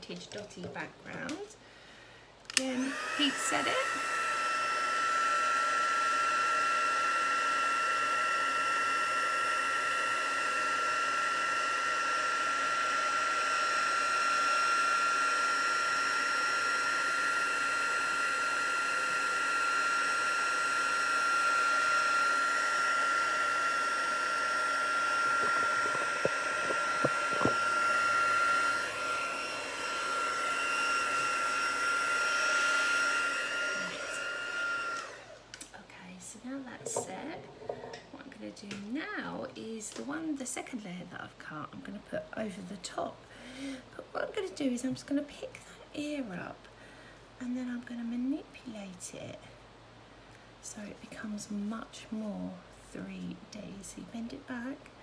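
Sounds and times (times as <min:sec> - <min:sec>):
heat tool fan whining: 0:02.4 - 0:40.8.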